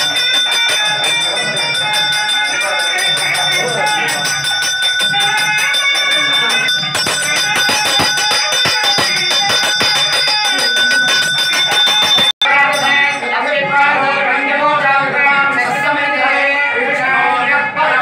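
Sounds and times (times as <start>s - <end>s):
fast sharp strikes: 0.0s - 13.2s
temple bells ringing: 0.0s - 13.7s
music: 0.0s - 18.0s.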